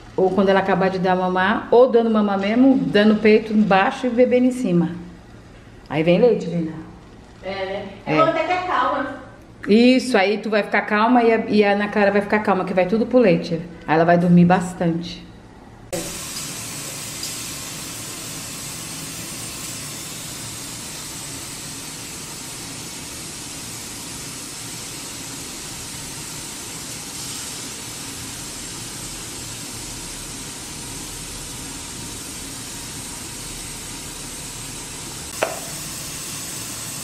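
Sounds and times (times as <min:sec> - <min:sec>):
sharp knock: 0:35.4 - 0:35.7.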